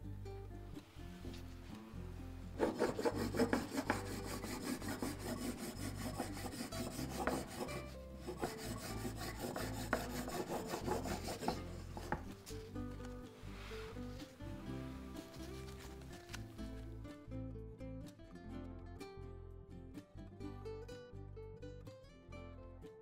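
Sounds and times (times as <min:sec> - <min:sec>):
serrated blade sawing through cake: 0:02.6 - 0:12.0.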